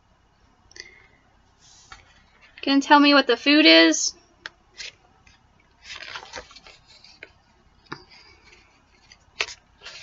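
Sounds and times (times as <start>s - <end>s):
paper rustling: 4.8s - 10.0s.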